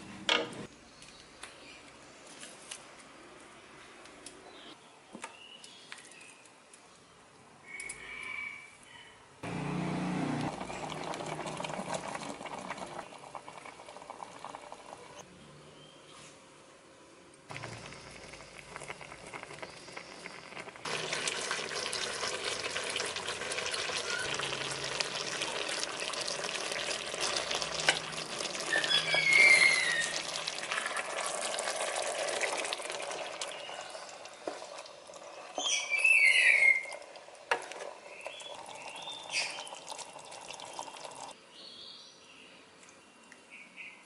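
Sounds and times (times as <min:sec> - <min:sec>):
sauce bubbling and sizzling: 0:09.5 - 0:15.2, 0:17.5 - 0:41.4
short high squeaks: 0:28.6 - 0:30.3.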